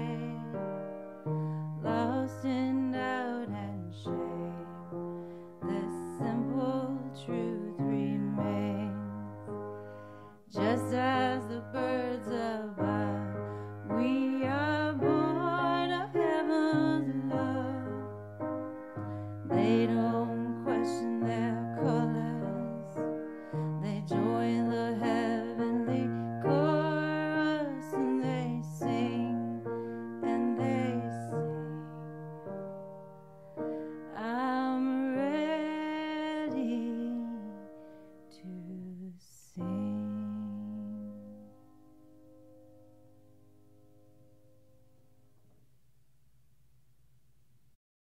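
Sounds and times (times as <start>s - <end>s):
woman singing a slow ballad: 0.0s - 9.6s, 10.4s - 18.2s, 19.1s - 32.3s, 34.1s - 41.6s
soft piano accompaniment: 0.0s - 45.7s.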